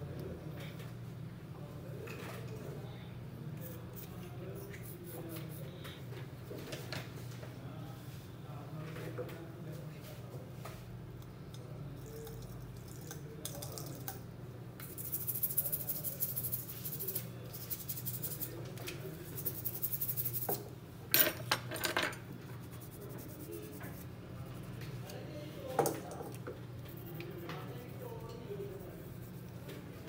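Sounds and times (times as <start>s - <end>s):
steady low hum: 10.4s - 21.4s, 22.1s - 30.0s
metal tools clicking and scraping: 20.5s - 22.2s.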